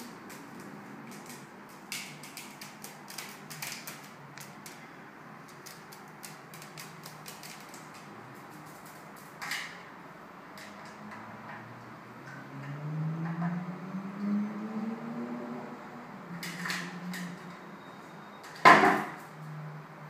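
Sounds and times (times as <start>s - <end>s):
bird claws tapping on tiles: 0.0s - 4.8s, 5.5s - 9.8s.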